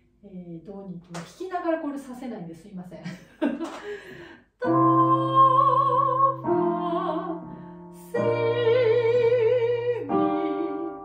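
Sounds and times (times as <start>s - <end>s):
piano chords: 4.1s - 11.0s
soprano singing with vibrato: 4.6s - 11.0s.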